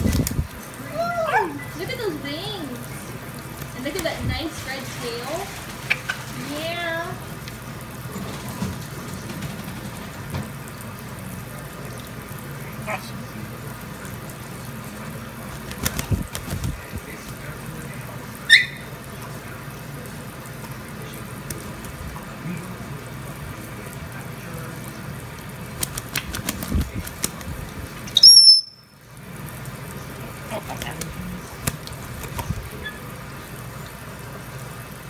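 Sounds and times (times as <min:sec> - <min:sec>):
parrot wing-flaps splashing: 0:00.0 - 0:01.8, 0:02.7 - 0:12.6, 0:13.5 - 0:35.0
tap water running into sink: 0:02.8 - 0:12.5
parrot high whistle: 0:18.5 - 0:18.9, 0:28.2 - 0:28.9
parrot squeak: 0:18.5 - 0:18.9, 0:28.2 - 0:28.9.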